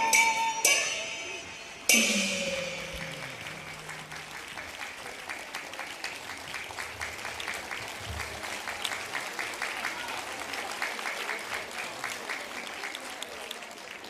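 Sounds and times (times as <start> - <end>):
low ringing note: 0.0 - 4.6
audience applauding: 2.7 - 14.0.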